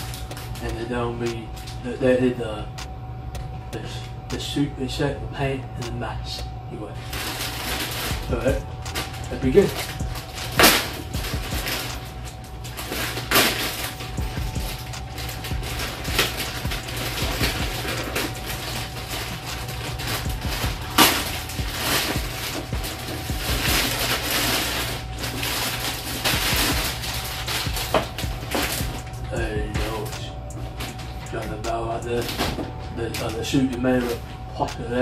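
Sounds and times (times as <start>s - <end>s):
steady low hum: 0.0s - 35.0s
plastic bag crinkling: 7.0s - 34.5s.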